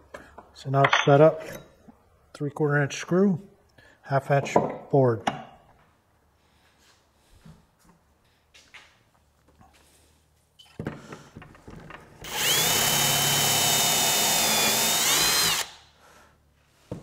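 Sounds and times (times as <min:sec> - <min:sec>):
cordless drill whining: 0:12.2 - 0:15.8.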